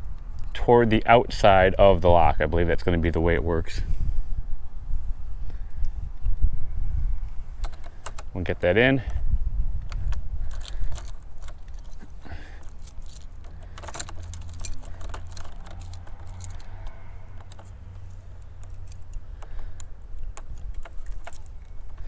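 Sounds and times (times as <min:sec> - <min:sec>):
keys jangling on a key ring: 0:10.4 - 0:19.3, 0:20.4 - 0:22.0
small metallic lock clicks: 0:12.6 - 0:22.0.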